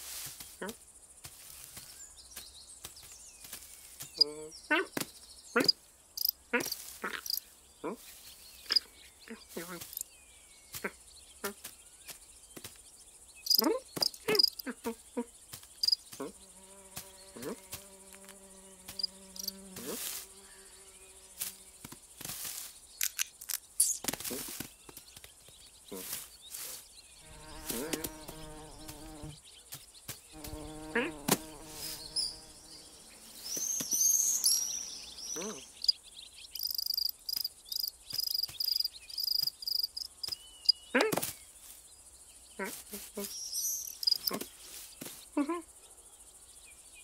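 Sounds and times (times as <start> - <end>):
cartoon insect buzzing: 5.6 - 7.4, 13.5 - 14.7, 15.8 - 20.6, 27.2 - 29.4, 30.4 - 32.8, 43.6 - 44.4.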